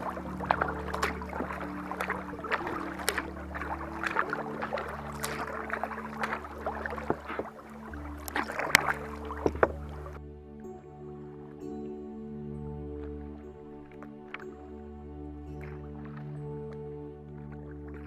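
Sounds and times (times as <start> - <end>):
paddle splashes and drips: 0.0 - 10.2, 13.0 - 18.0
water rushing along kayak hull: 0.0 - 10.3.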